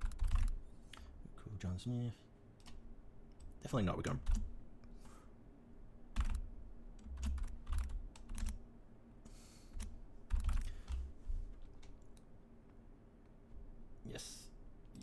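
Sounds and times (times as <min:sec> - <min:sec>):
typing on computer keyboard: 0:00.0 - 0:00.6, 0:04.2 - 0:04.5, 0:06.2 - 0:06.4, 0:07.0 - 0:08.6, 0:09.8 - 0:11.1.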